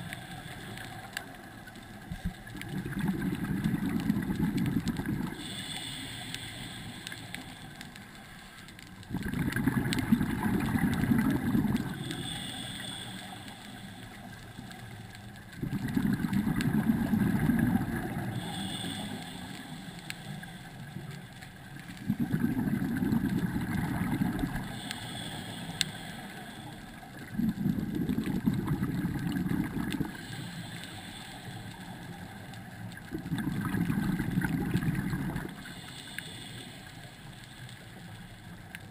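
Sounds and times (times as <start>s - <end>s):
exhaled bubbles underwater: 2.0s - 6.0s, 9.0s - 12.9s, 15.5s - 19.9s, 21.8s - 25.1s, 26.8s - 30.4s, 32.5s - 35.9s
regulator inhalation hiss: 5.0s - 8.7s, 10.0s - 15.5s, 16.7s - 21.9s, 22.9s - 27.4s, 30.0s - 32.8s, 33.7s - 38.6s.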